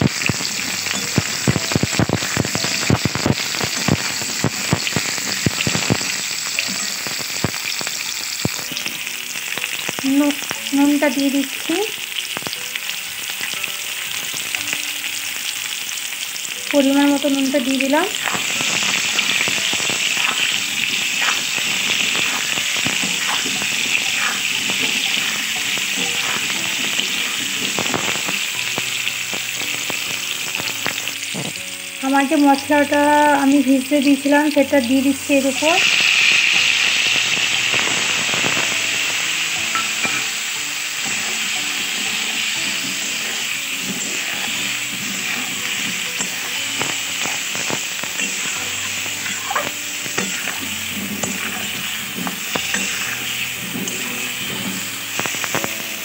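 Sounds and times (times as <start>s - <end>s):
oil crackling and popping: 0.0s - 56.0s
potatoes sizzling in oil: 0.0s - 56.0s
metal spatula turning food: 17.2s - 31.7s, 35.9s - 56.0s.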